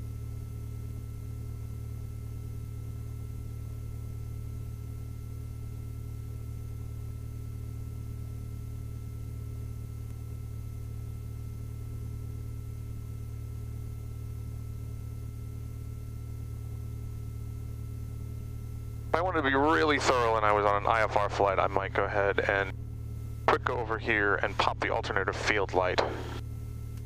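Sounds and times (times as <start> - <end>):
faint steady tones: 0.0 - 27.0
aircraft engine idling: 16.2 - 27.0.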